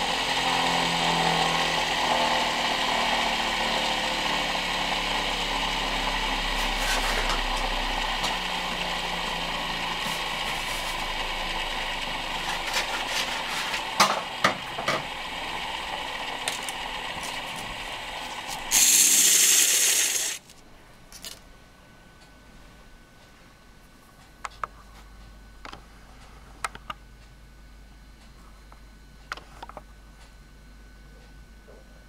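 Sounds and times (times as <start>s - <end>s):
wood lathe running: 0.0s - 20.5s
loud hiss: 18.4s - 20.4s.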